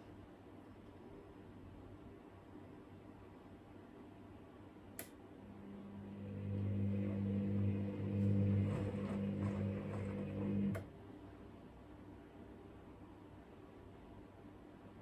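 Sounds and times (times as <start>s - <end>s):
washing machine motor humming: 5.4s - 11.0s.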